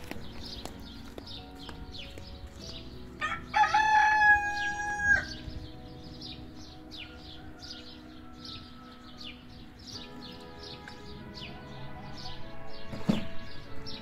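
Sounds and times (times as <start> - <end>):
small birds chirping: 0.0 - 14.0
rooster crowing: 3.2 - 5.4, 7.0 - 8.9.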